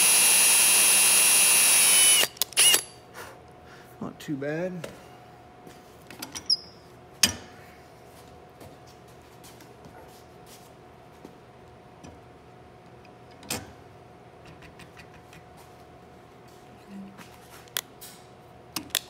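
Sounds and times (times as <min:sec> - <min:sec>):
brief squeak: 0:06.4 - 0:06.8.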